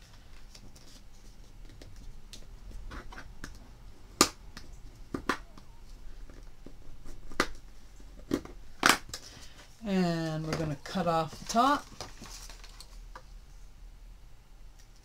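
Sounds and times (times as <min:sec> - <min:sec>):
paper rustling: 0:10.4 - 0:13.0.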